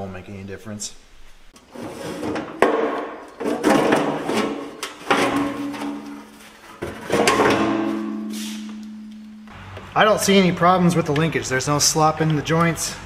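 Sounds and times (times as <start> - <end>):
metal parts clunking and scraping: 1.6 - 9.3
steady low hum: 5.3 - 12.2.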